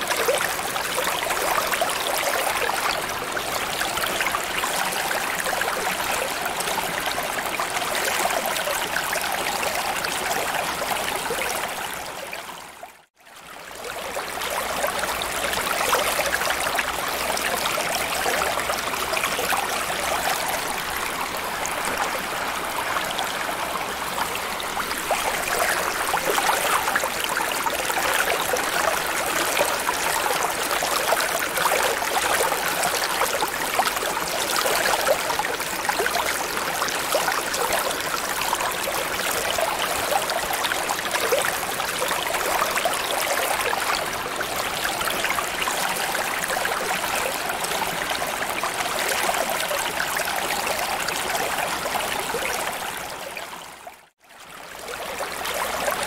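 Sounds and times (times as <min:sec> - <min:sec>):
underwater rushing water: 0:14.2 - 0:53.1.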